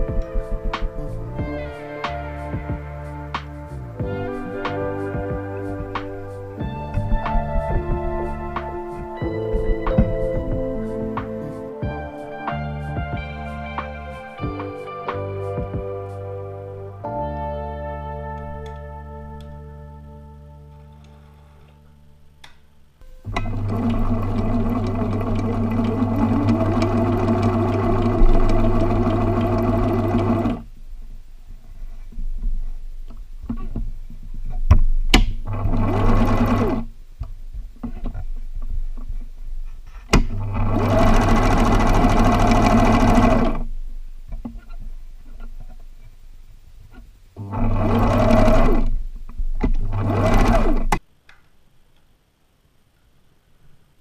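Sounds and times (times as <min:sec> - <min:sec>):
sewing machine running: 0:06.9 - 0:11.5, 0:23.3 - 0:30.7, 0:35.4 - 0:36.9, 0:40.2 - 0:43.7, 0:47.4 - 0:49.0, 0:49.6 - 0:51.0.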